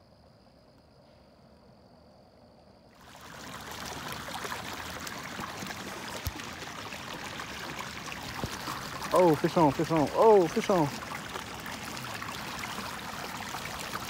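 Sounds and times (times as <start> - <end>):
water rushing and splashing: 3.0 - 14.0.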